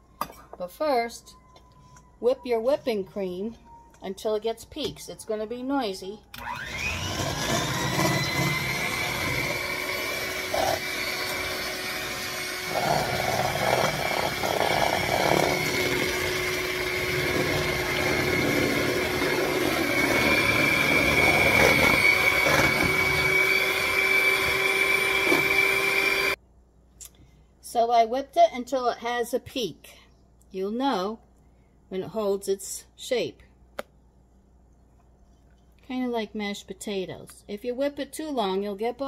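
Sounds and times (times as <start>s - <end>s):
electric hand mixer whining: 6.4s - 26.4s.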